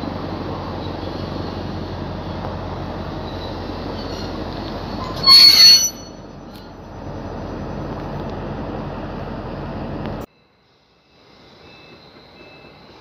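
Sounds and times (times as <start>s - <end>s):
diesel locomotive rumbling: 0.0s - 10.3s
metallic brake squeal: 3.2s - 6.8s.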